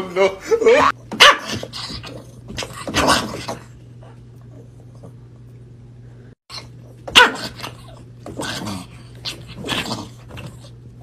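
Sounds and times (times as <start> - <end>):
steady low hum: 0.0 - 11.0
small dog barking: 1.2 - 1.6, 7.1 - 7.8.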